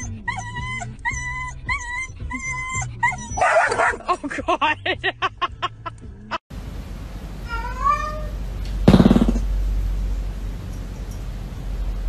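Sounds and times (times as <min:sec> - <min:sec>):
dog whining: 0:00.0 - 0:03.9
dog yipping: 0:00.0 - 0:04.0
dog barking: 0:03.3 - 0:04.0.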